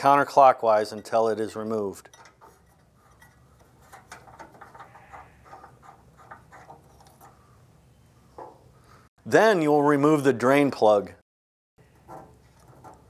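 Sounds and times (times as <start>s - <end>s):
small clicks and rattles: 2.1s - 7.4s.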